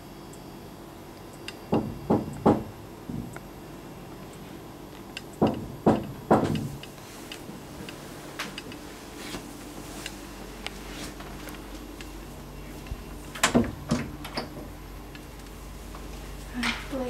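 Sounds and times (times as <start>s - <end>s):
knocks on a door: 1.8s - 3.4s, 5.4s - 6.8s.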